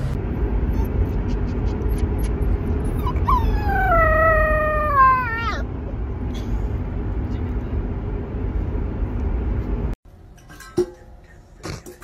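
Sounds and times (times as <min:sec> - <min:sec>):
car interior rumble: 0:00.0 - 0:10.0
puppy howling: 0:00.8 - 0:05.7.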